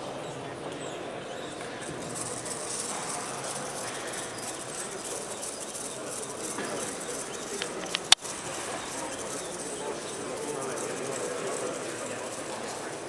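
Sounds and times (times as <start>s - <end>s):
sharp clicks: 5.5s - 8.4s.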